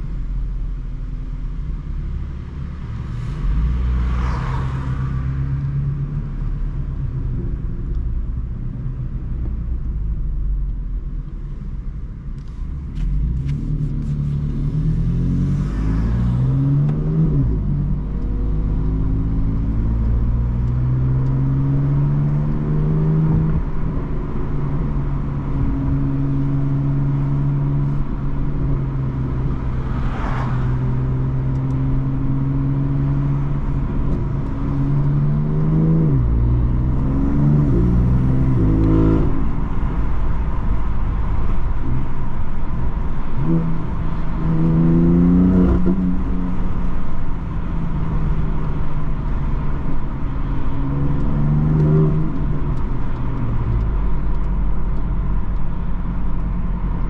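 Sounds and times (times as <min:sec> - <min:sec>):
car engine revving: 0:12.4 - 0:57.0.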